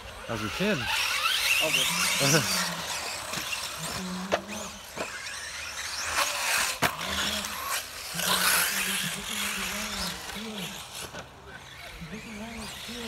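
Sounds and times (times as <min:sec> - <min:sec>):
rc car motors whining: 0:00.0 - 0:13.0.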